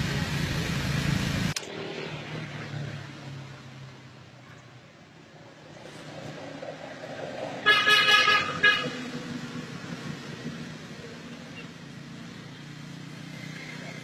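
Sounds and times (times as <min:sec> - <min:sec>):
low traffic rumble: 0:00.0 - 0:14.0
vehicle horn honking: 0:07.6 - 0:09.0.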